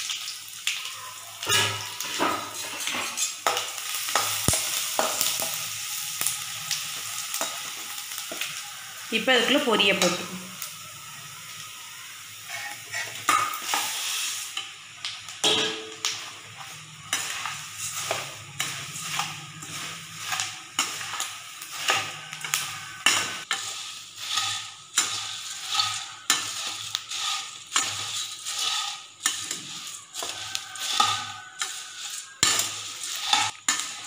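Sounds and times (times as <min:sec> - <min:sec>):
hot oil sizzling: 0:00.0 - 0:34.0
dry puffed rice rustling: 0:16.2 - 0:34.0
ladle scraping a steel pan: 0:16.6 - 0:34.0.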